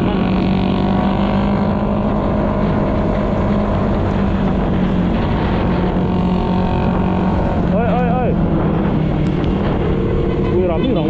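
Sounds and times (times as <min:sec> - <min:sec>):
scooter engine droning: 0:00.0 - 0:11.0
wind on microphone: 0:00.0 - 0:11.0.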